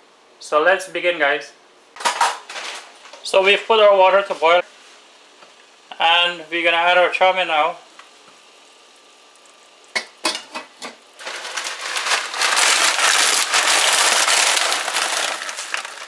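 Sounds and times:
noodles poured into water: 11.2 - 16.0
plastic packet crinkling: 11.2 - 16.0.

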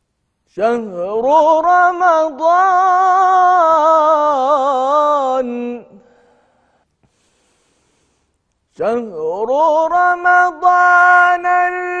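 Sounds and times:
man reciting in ornamented chant: 0.5 - 6.0, 8.7 - 12.0.

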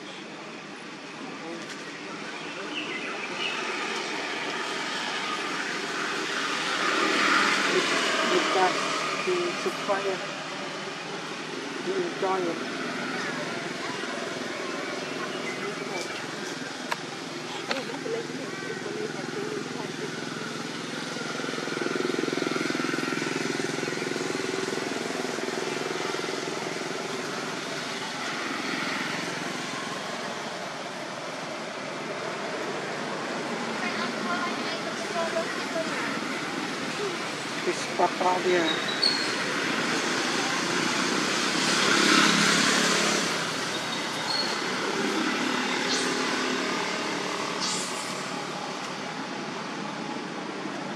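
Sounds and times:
passing vehicle rushing: 18.9 - 50.7
faint high chirp: 38.7 - 39.4, 43.7 - 44.7.

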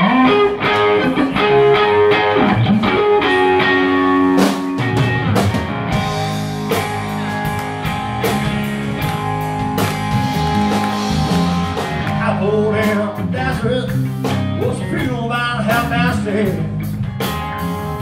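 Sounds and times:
bass guitar: 0.0 - 18.0
electric guitar sliding notes: 0.0 - 18.0
drums steady beat: 4.2 - 18.0.

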